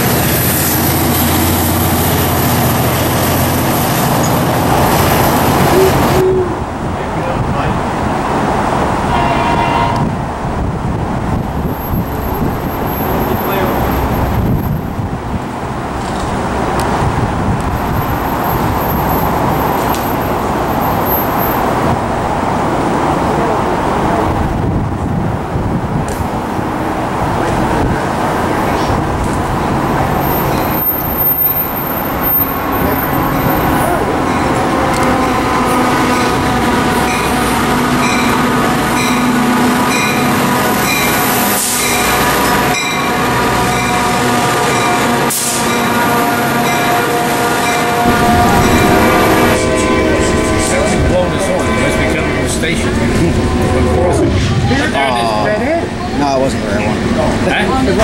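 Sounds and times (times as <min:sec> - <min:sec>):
locomotive bell ringing: 0:29.9 - 0:54.3
distant vehicle rumble: 0:47.9 - 0:58.0.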